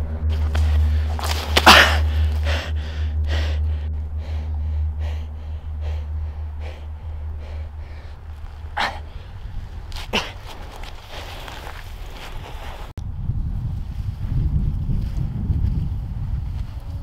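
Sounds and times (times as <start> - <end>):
low rumble: 0.0 - 17.0
man gasping and panting: 1.5 - 11.6.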